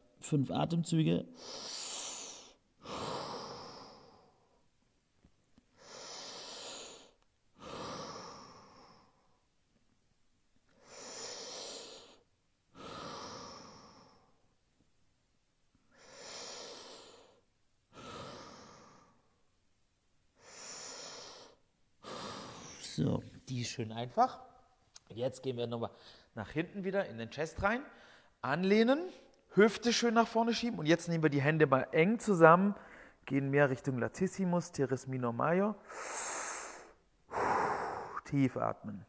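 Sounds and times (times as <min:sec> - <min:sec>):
man breathing deeply: 0:01.3 - 0:04.6, 0:05.7 - 0:09.4, 0:10.7 - 0:14.4, 0:15.9 - 0:19.4, 0:20.4 - 0:22.9, 0:32.8 - 0:33.2, 0:35.8 - 0:38.3.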